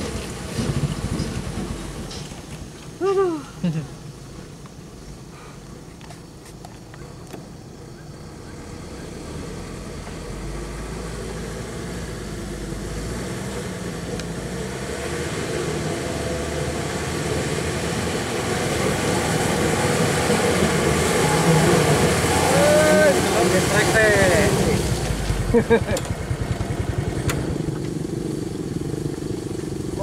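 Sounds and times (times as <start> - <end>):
diesel truck engine running: 7.6 - 30.0.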